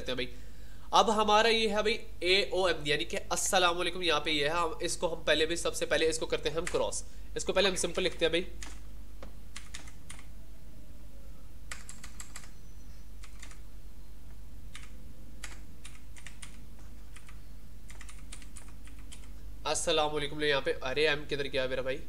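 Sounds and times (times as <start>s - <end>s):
steady low hum: 0.0s - 22.0s
typing on computer keyboard: 8.0s - 8.8s, 9.5s - 10.3s, 11.7s - 12.6s, 13.2s - 13.6s, 14.7s - 19.4s.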